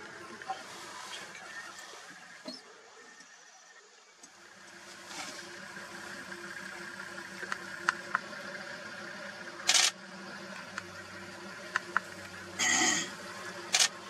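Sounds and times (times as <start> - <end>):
faint steady hum: 0.0 - 14.0
camera shutter clicks: 9.7 - 10.0, 13.7 - 13.9.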